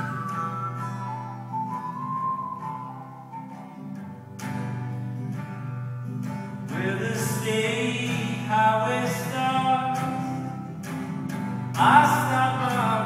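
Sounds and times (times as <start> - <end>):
acoustic guitar strumming: 0.0 - 13.0
man singing: 6.7 - 10.4, 11.8 - 13.0.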